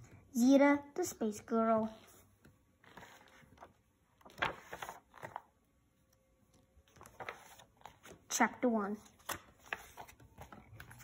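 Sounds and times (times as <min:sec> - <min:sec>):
book pages turning: 0:01.9 - 0:08.3, 0:09.0 - 0:11.0.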